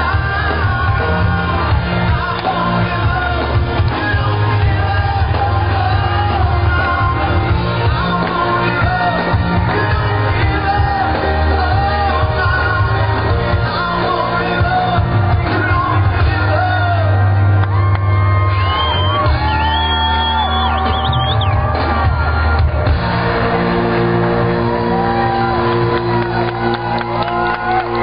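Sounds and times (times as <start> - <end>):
man singing: 0.0 - 17.6
live pop-rock band playing: 0.0 - 28.0.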